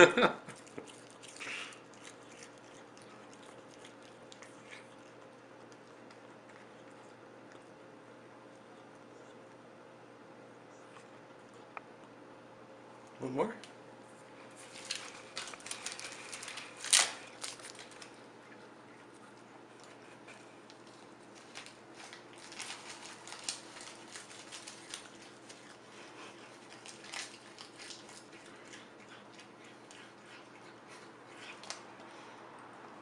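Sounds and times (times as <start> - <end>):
low steady hum: 0.0 - 33.0
light clicks and crinkling: 14.6 - 18.2, 19.0 - 28.6.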